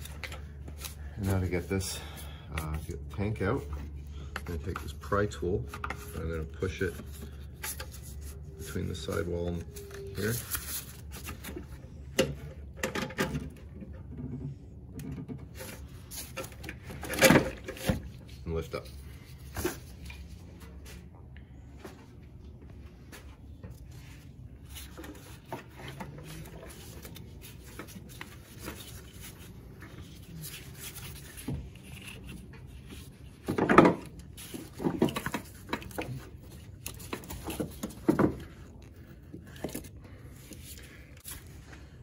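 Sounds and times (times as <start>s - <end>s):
low steady hum: 0.0s - 42.0s
clunks and knocks of engine parts: 11.3s - 18.1s, 33.2s - 39.0s.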